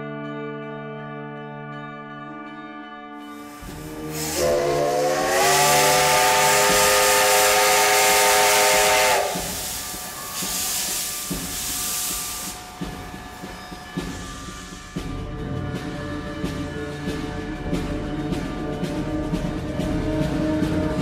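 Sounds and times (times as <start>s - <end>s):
music: 0.0s - 21.0s
steam locomotive whistle: 3.4s - 15.0s
steam hissing: 3.4s - 15.2s.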